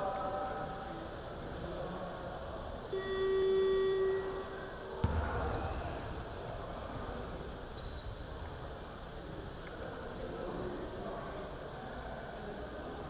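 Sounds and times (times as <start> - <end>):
basketball thud on court: 5.0 - 5.7
sneaker squeaks on floor: 10.2 - 10.8.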